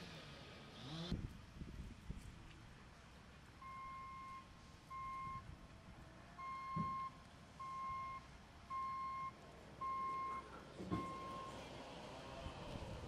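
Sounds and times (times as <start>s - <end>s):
backup alarm beeping: 6.4s - 11.5s.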